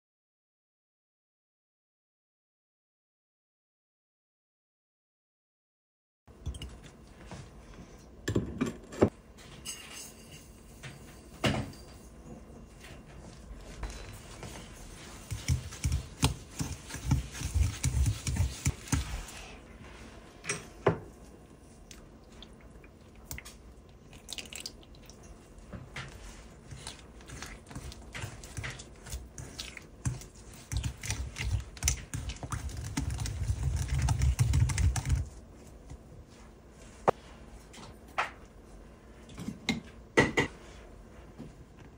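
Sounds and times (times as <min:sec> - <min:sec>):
stirring in a bowl: 0:13.2 - 0:20.4, 0:21.1 - 0:35.9.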